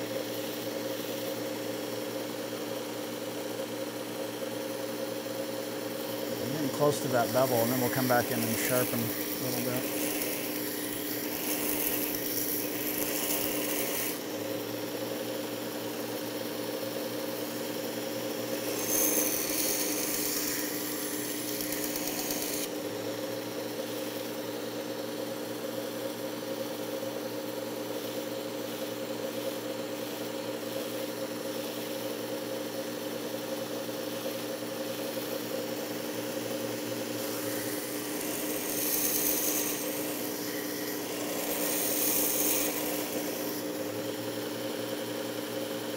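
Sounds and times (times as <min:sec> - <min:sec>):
sharpener motor hum: 0:00.0 - 0:45.9
knife grinding on belt hiss: 0:06.2 - 0:14.2, 0:18.6 - 0:22.7, 0:37.0 - 0:43.8.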